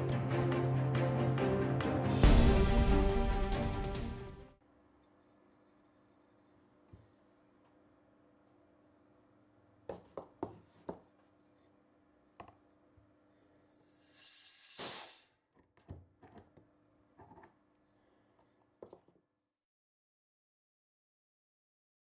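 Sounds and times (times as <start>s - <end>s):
short hiss: 13.7s - 15.4s.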